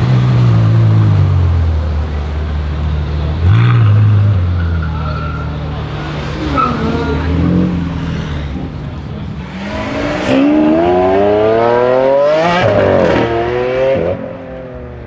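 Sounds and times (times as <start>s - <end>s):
car engine accelerating hard: 9.4s - 14.7s.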